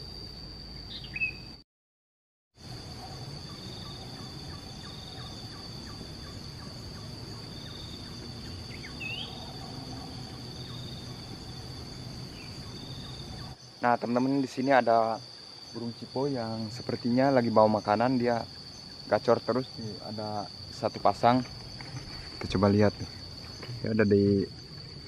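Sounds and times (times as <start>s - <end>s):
insect chorus: 0.0s - 1.6s, 2.6s - 25.0s
bird chirps: 0.8s - 1.6s, 3.4s - 11.3s, 11.9s - 13.6s.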